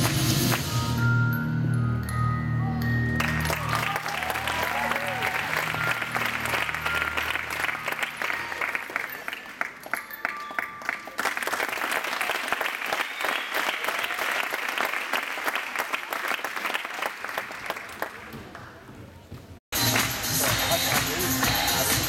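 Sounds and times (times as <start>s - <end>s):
display music: 0.0s - 11.2s
audience applauding: 3.2s - 18.7s.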